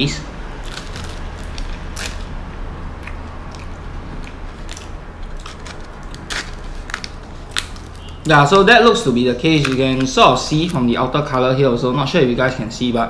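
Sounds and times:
steady low hum: 0.0 - 13.0
person chewing crispy food: 0.6 - 8.3.

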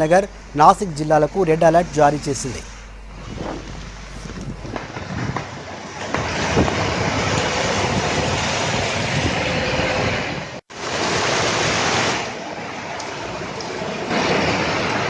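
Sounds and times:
floodwater rushing: 10.7 - 15.0.

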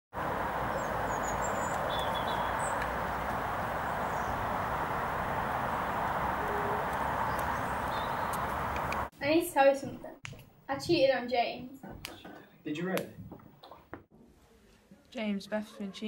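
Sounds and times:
street ambience hiss: 0.2 - 9.8
bird chirps: 0.7 - 3.0, 6.4 - 8.6.

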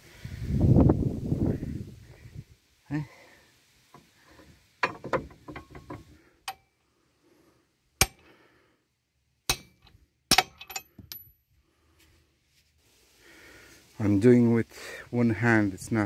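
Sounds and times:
metal clinking and clattering: 4.8 - 6.6, 9.7 - 11.3
hammer striking metal shaft: 9.5 - 10.9.

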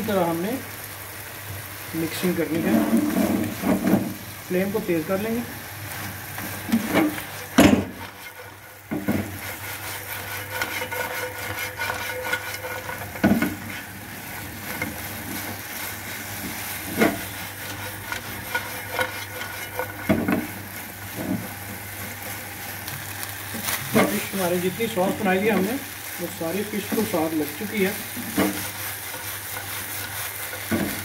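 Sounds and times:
fish sizzling in a pan: 0.0 - 31.0
spatula scraping a pan: 2.5 - 4.2, 5.9 - 25.9, 26.5 - 31.0
spatula knocking on pan: 8.9 - 9.4, 30.7 - 31.0.

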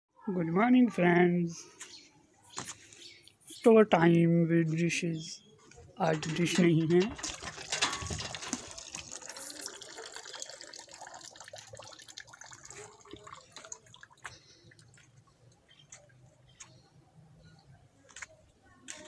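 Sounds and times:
water pouring into a bucket: 6.1 - 15.2.

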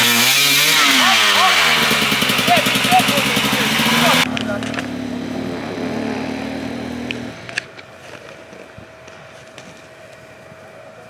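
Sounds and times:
dirt bike engine idling: 0.0 - 7.6.

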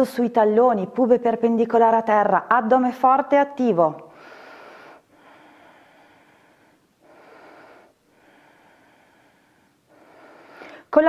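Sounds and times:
woman breathing slowly: 4.1 - 10.9.

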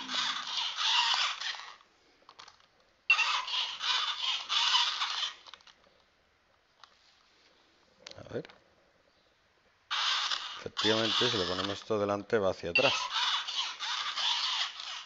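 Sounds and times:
toy robot gear motors whirring: 0.0 - 5.8, 9.9 - 12.0, 12.8 - 15.0.

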